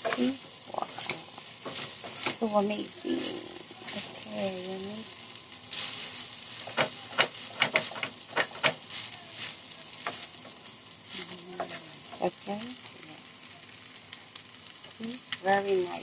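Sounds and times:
spatula scraping and tapping pan: 0.0s - 2.4s, 5.7s - 10.6s
rice sizzling in a wok: 0.0s - 16.0s.

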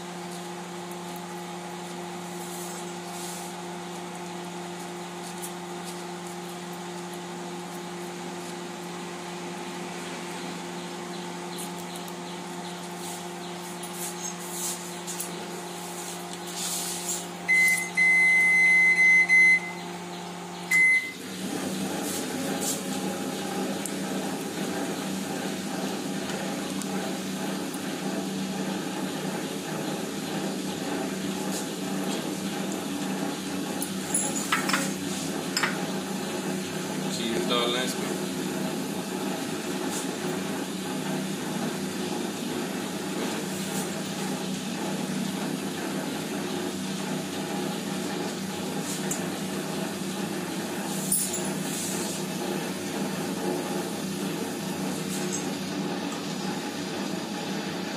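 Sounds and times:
microwave oven humming: 0.0s - 57.9s
electronic beep: 17.5s - 19.8s, 20.7s - 21.2s.

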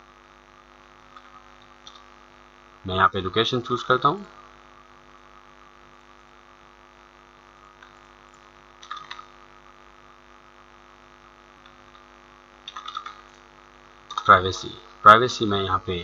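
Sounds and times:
faint mains hum: 0.0s - 16.0s
computer mouse clicks: 1.1s - 2.1s, 8.8s - 9.3s, 12.7s - 13.3s.

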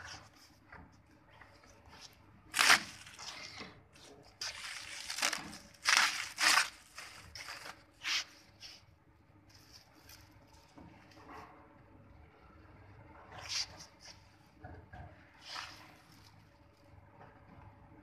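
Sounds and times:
plastic film crinkling: 2.0s - 3.5s, 4.4s - 8.3s.

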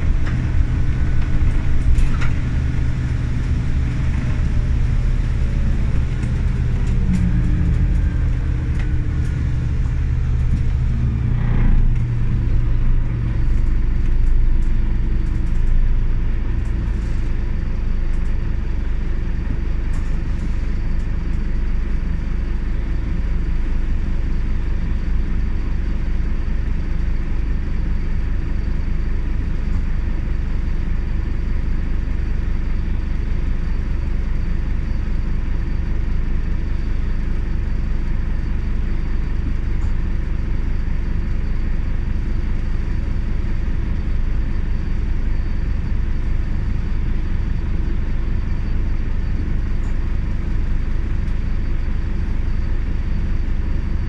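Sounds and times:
faint high whine: 0.0s - 22.9s
bus engine and road rumble: 0.0s - 54.0s.

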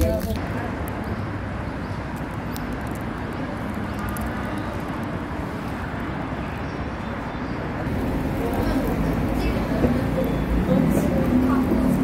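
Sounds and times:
monorail train running rumble: 6.5s - 12.0s.

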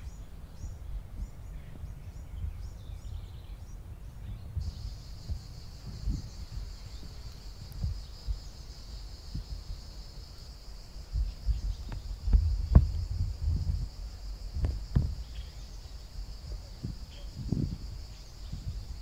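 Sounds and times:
insects droning: 0.0s - 19.0s
low thumps: 11.1s - 15.5s.

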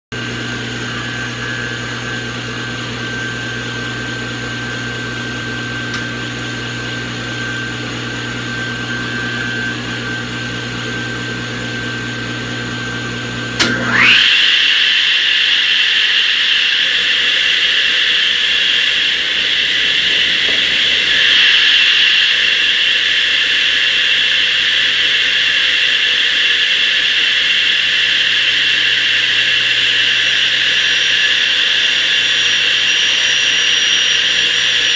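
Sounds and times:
radial arm saw whining: 0.2s - 34.9s
saw switch click: 5.9s - 6.1s, 13.6s - 14.0s
steady low hum: 13.5s - 34.8s.

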